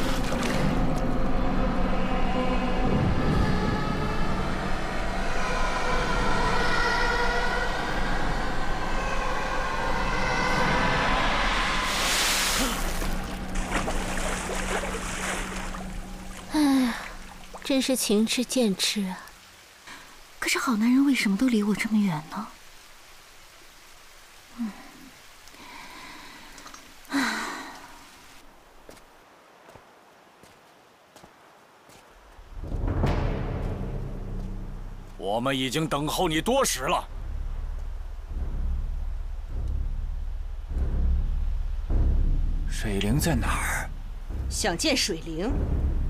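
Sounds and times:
dramatic string-like music: 0:00.0 - 0:19.0, 0:32.4 - 0:46.0
woman sighing: 0:16.5 - 0:17.2, 0:24.5 - 0:28.0.

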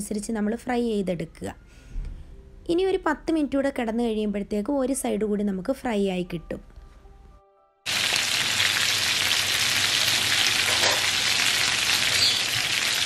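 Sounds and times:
chicken sizzling in oil: 0:07.9 - 0:13.0.

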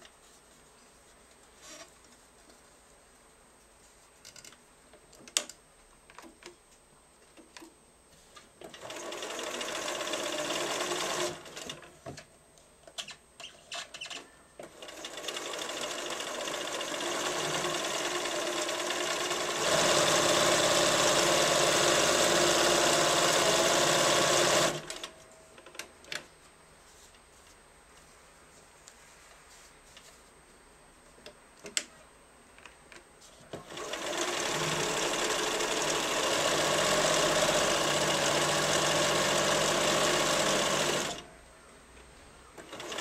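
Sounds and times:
sewing machine stitching: 0:08.6 - 0:11.9, 0:14.6 - 0:25.1, 0:33.5 - 0:41.2, 0:42.6 - 0:43.0.

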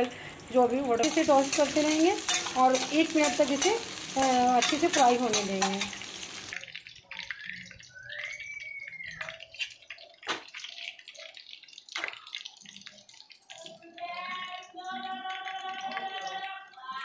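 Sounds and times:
utensils clinking on pan: 0:01.0 - 0:06.6.

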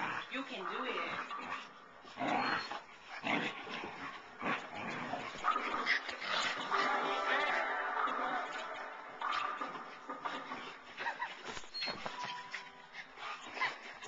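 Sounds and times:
dogs play-fighting: 0:00.0 - 0:14.0.

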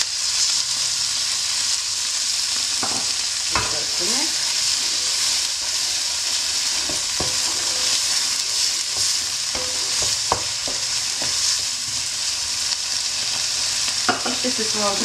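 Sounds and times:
food sizzling in a wok: 0:00.0 - 0:15.0
wooden spoon scraping a pan: 0:02.9 - 0:12.2
spoon knocking against pan: 0:06.8 - 0:07.6, 0:08.9 - 0:11.4.

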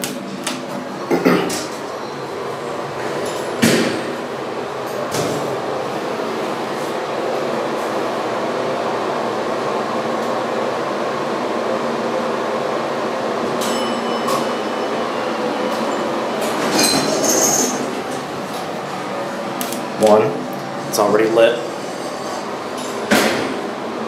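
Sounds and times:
elevator mechanical hum and rumble: 0:00.0 - 0:24.0
short metallic ring: 0:13.6 - 0:14.7.

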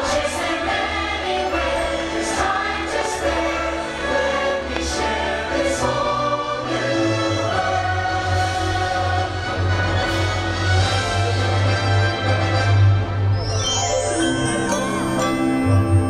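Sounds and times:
choir singing held notes: 0:00.0 - 0:11.6
soundtrack music: 0:00.0 - 0:16.0.

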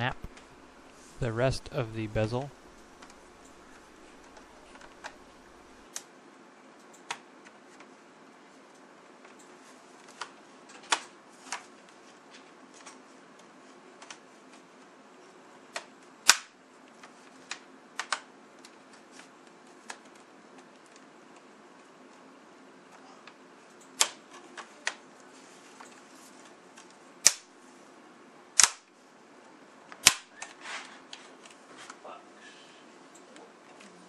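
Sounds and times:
loud plastic snap: 0:15.8 - 0:16.6, 0:27.2 - 0:27.5, 0:28.6 - 0:28.9, 0:30.0 - 0:30.5.

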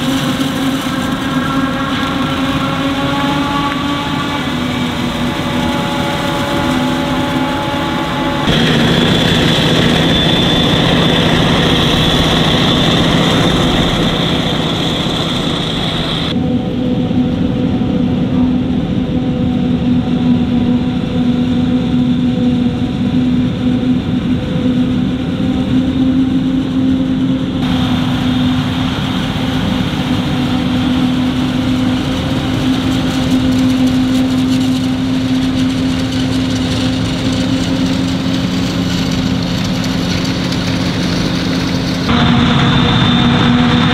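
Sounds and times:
diesel farm machinery running: 0:00.0 - 0:16.4, 0:24.9 - 0:43.9.

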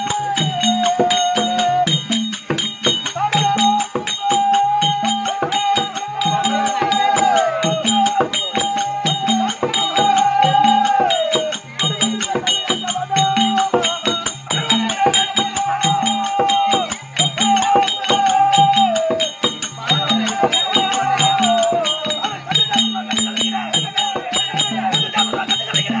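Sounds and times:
sharp bright percussion strokes: 0:00.0 - 0:26.0
steady drum beat: 0:00.0 - 0:26.0.

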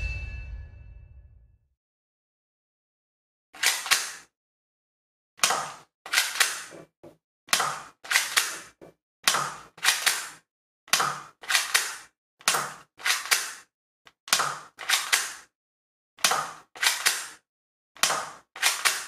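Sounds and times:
airsoft pistol snaps and clacks: 0:03.6 - 0:04.3, 0:05.4 - 0:06.7, 0:09.3 - 0:13.7, 0:14.3 - 0:15.5, 0:16.2 - 0:17.4, 0:18.0 - 0:19.0.

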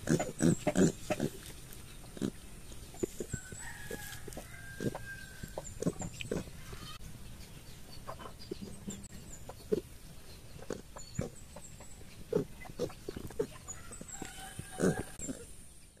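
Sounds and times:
piglets grunting: 0:00.0 - 0:01.5, 0:02.1 - 0:02.5, 0:04.7 - 0:07.0, 0:10.6 - 0:11.6, 0:12.2 - 0:15.6.

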